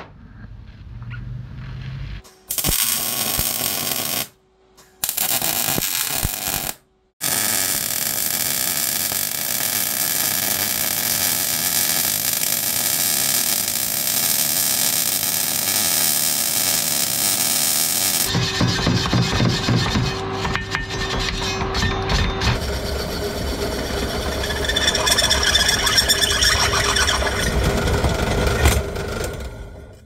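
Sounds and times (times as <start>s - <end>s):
welder arc crackling: 1.8s - 4.4s, 5.0s - 18.3s.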